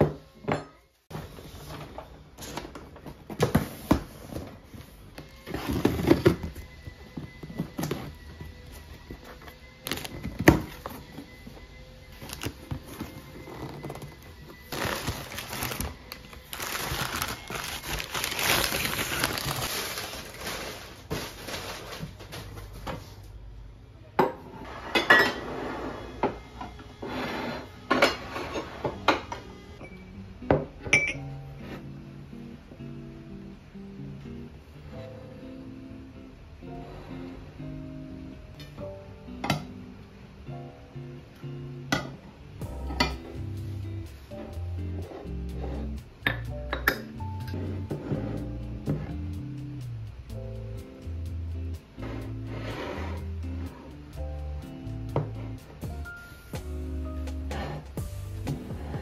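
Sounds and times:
soft background music: 0.0 - 59.0
packing paper rustling: 12.1 - 23.2.

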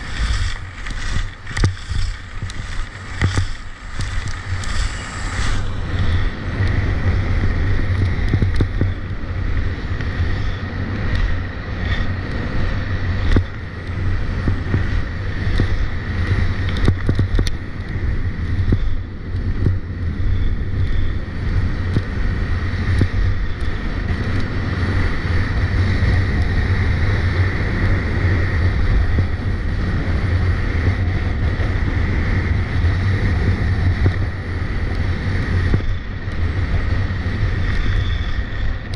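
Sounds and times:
skis carving on icy snow: 0.0 - 19.7
wind buffeting microphone: 0.0 - 38.9.

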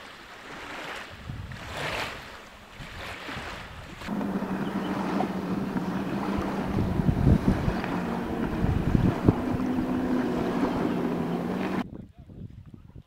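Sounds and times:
wind buffeting microphone: 1.1 - 1.8, 2.8 - 13.0
steady low hum: 4.1 - 11.8.

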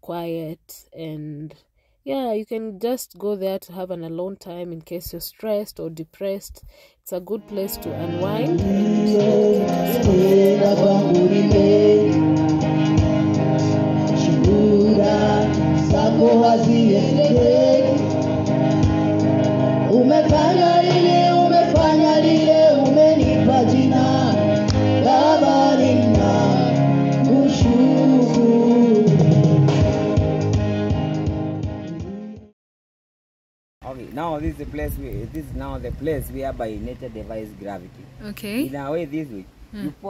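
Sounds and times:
person singing with music: 7.4 - 32.5.

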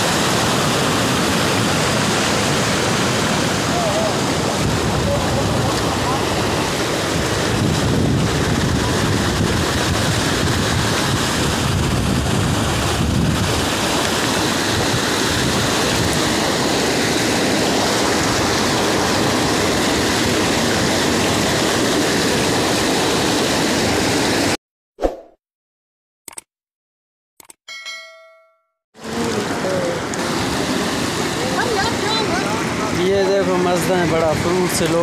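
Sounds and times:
floodwater flowing: 0.0 - 24.6, 29.0 - 35.0
wind buffeting microphone: 4.4 - 13.8.

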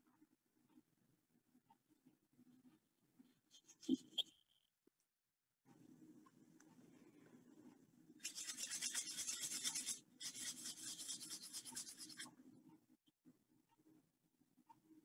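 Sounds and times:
paint scrubbed onto canvas: 8.2 - 12.3.

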